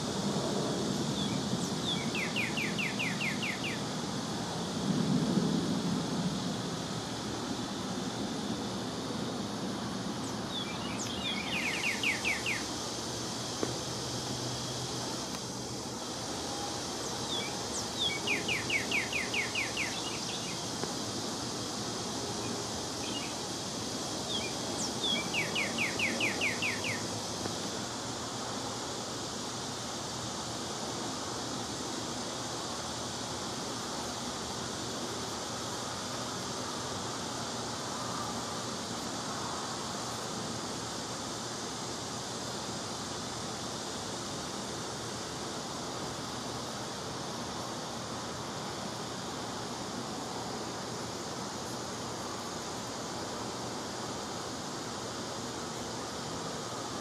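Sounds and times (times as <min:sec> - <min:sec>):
background hiss: 0:00.0 - 0:57.0
songbird singing: 0:00.9 - 0:03.9, 0:10.2 - 0:15.4, 0:16.7 - 0:21.2, 0:22.4 - 0:27.6.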